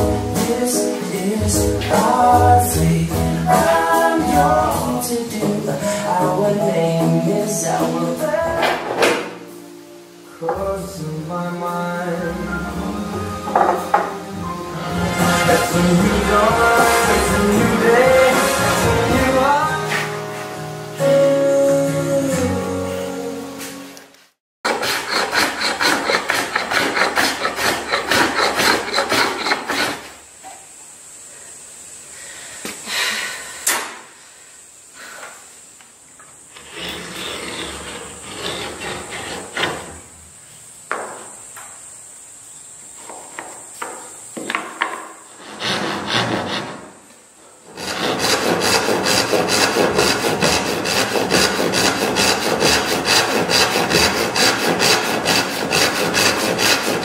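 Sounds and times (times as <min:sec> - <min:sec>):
sanding block rubbing wood: 0:14.9 - 0:20.6, 0:24.6 - 0:30.2, 0:36.6 - 0:40.0, 0:45.3 - 0:47.0, 0:47.7 - 0:57.0.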